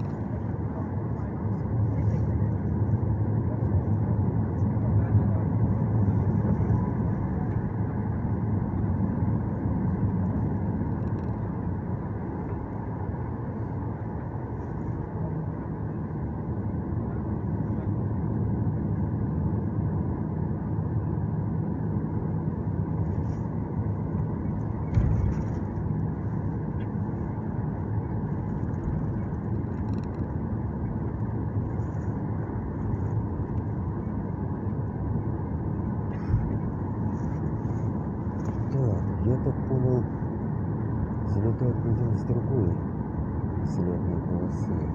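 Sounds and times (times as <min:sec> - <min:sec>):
jet engines rumbling: 0:00.0 - 0:44.9
thump: 0:24.9 - 0:25.4.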